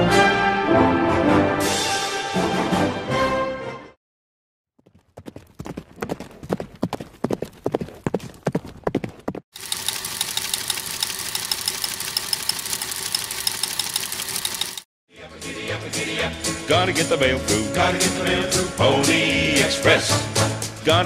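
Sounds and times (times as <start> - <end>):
horse hooves clip-clopping: 4.8 - 10.0.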